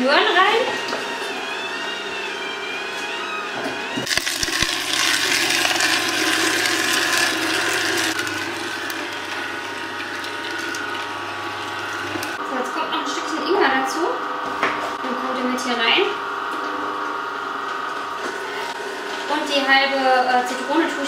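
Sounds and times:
juicer motor hum: 0.0s - 21.0s
juicer crushing carrots: 0.7s - 12.4s.

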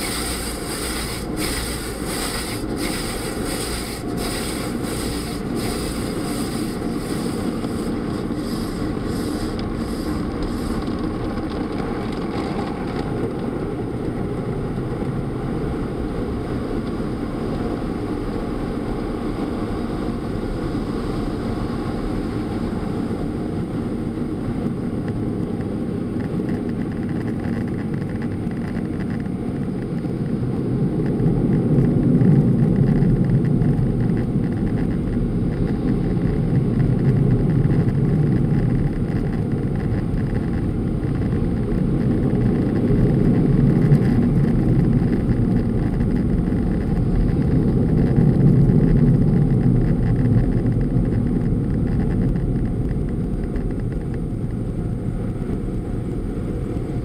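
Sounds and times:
car wash rushing over car: 0.0s - 12.9s.

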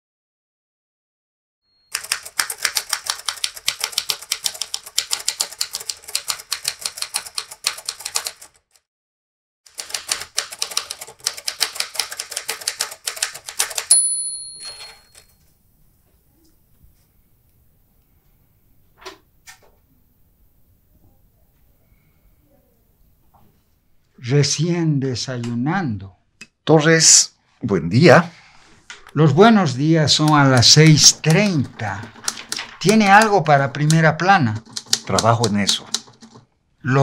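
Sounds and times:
typewriter bell ringing: 1.8s - 3.4s, 13.6s - 15.4s
typewriter keystrokes: 1.9s - 8.6s, 9.7s - 14.0s, 30.2s - 36.5s.

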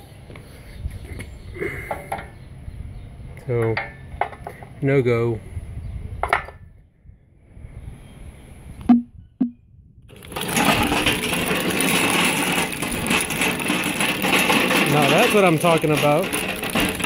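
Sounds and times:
toy tracked loader rattling: 10.1s - 17.0s.

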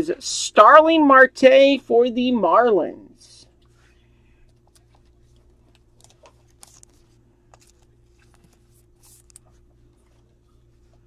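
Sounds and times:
steady low hum: 0.0s - 11.0s
card rustling and clicking: 4.4s - 10.4s.

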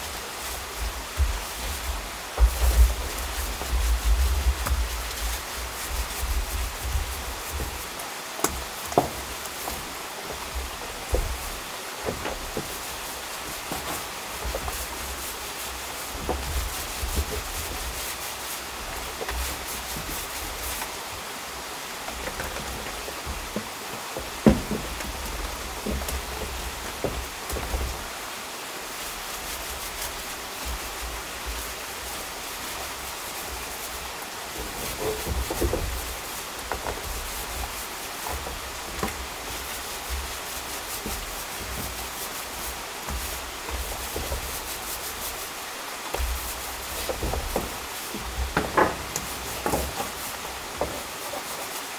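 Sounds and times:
paint roller rubbing on wood: 0.0s - 51.9s
steady rushing hiss: 0.0s - 51.9s
soft knocks: 22.0s - 28.1s.

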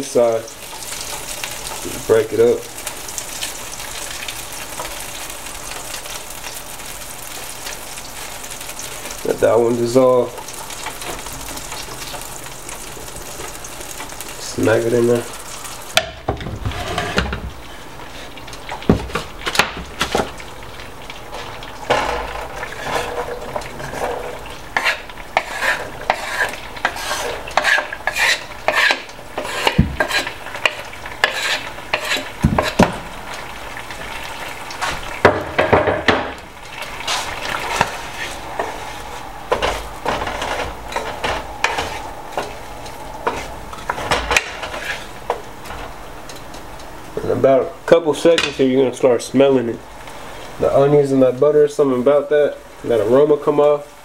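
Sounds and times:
onions sizzling in butter: 0.0s - 48.3s
wooden spoon scraping a pan: 16.2s - 18.4s, 21.4s - 33.0s, 36.7s - 46.0s.

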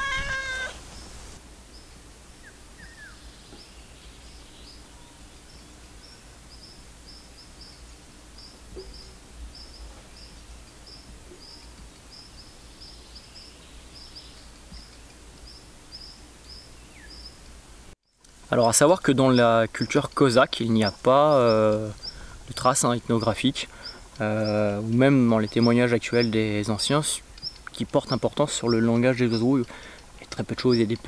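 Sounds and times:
cat meowing: 0.0s - 0.8s
bird alarm calls: 0.0s - 1.4s, 27.2s - 30.0s.

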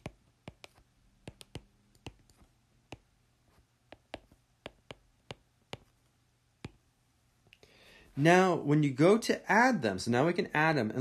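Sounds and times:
pen ticking on paper: 0.0s - 3.1s, 3.9s - 5.9s.

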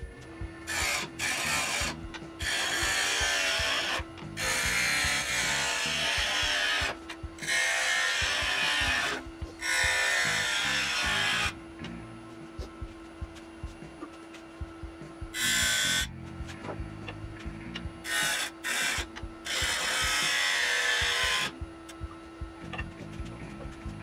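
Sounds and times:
background music: 0.0s - 24.0s
lathe tool cutting wood: 0.7s - 11.6s, 15.3s - 16.1s, 18.0s - 21.6s.

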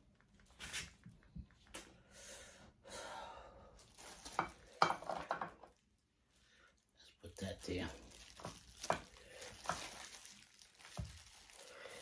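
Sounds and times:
person breathing: 2.0s - 3.9s, 9.1s - 9.8s, 11.5s - 12.0s.

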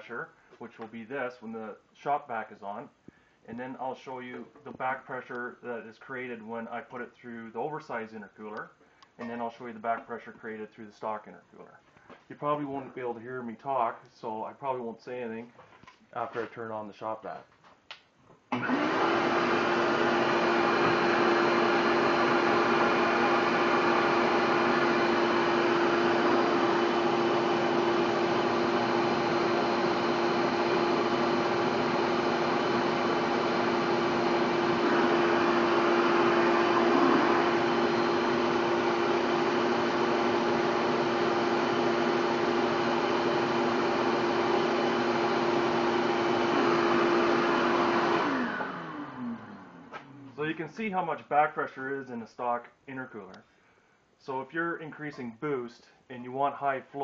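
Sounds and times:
shop vacuum running: 18.5s - 50.6s.

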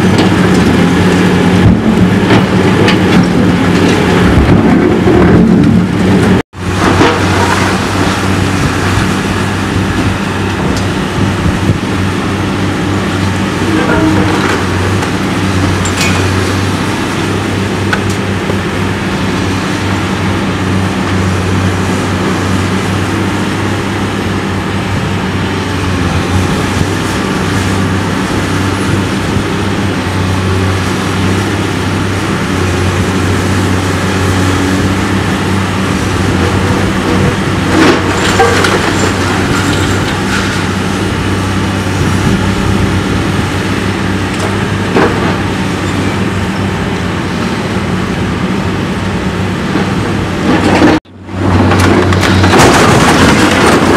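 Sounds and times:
excavator diesel engine running: 0.0s - 53.9s
brick and rubble crashing down: 51.7s - 53.9s.

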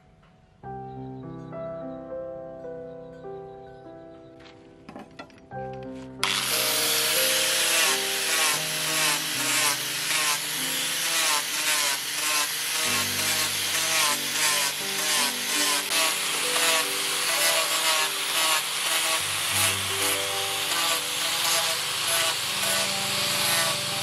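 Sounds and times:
background music: 0.0s - 24.0s
power sander grinding: 6.2s - 24.0s.

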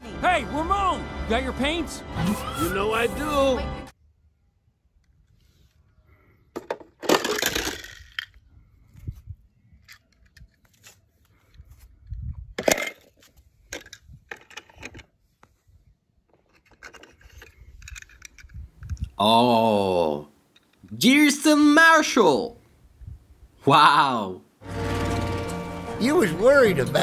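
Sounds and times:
toy cars clicking and rattling: 6.7s - 8.4s, 16.4s - 19.0s.

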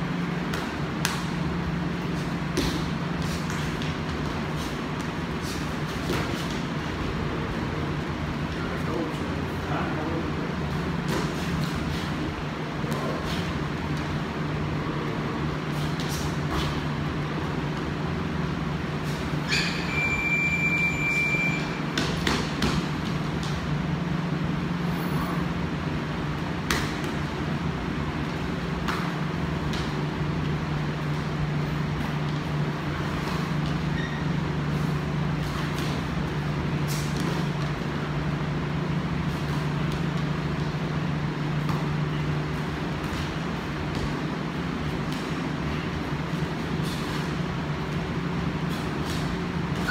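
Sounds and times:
low mechanical hum with rushing: 0.0s - 49.9s
high tone: 19.5s - 21.8s.

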